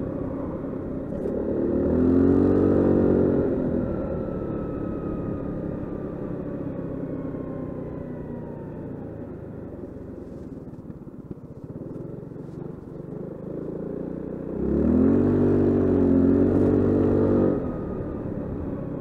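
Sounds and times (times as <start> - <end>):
scooter engine revving: 0.0 - 6.3, 10.3 - 19.0.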